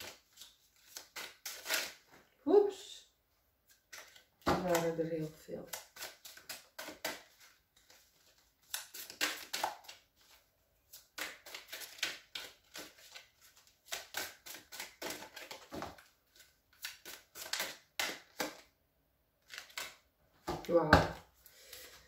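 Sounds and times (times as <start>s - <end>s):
cards being shuffled: 0.0s - 2.2s, 3.7s - 5.1s, 5.7s - 18.7s, 19.4s - 20.8s.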